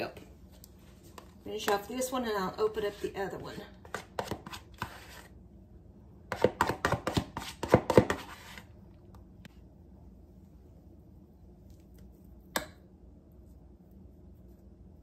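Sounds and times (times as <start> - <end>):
spoon scraping plastic tub: 2.6 - 5.3, 6.3 - 8.7.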